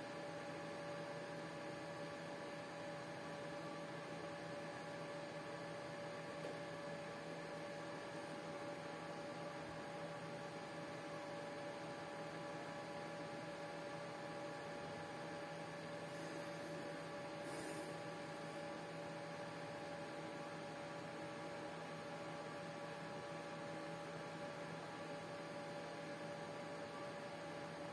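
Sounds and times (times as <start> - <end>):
electrical hum: 9.4 - 22.3.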